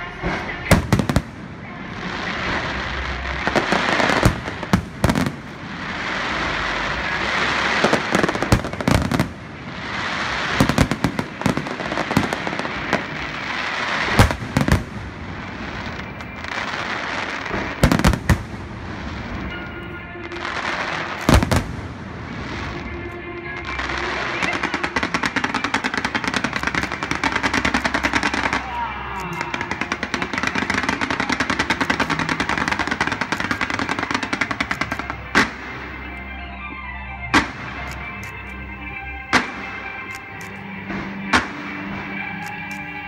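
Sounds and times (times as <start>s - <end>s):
fireworks crackling hiss: 0.0s - 36.3s, 37.3s - 43.0s
firework shells bursting: 23.7s - 36.2s.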